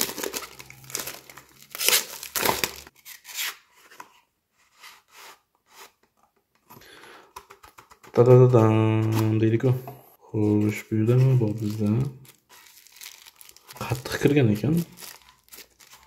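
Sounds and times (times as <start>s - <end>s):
plastic shrink wrap crackling: 0.0s - 2.9s, 10.7s - 16.0s.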